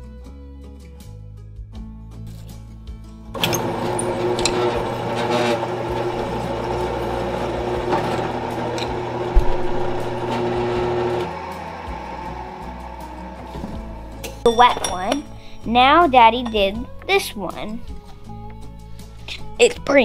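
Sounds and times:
drill press cutting metal: 3.4s - 15.2s.

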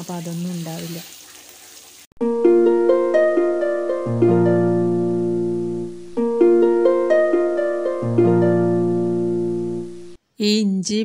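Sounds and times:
harp-like plucked arpeggio: 2.2s - 10.2s.

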